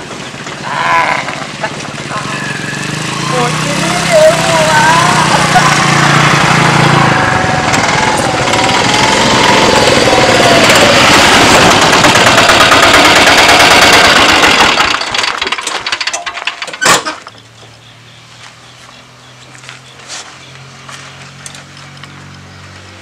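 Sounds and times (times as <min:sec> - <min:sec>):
engines rattling: 0:00.0 - 0:23.0
wavering whine: 0:02.1 - 0:12.4.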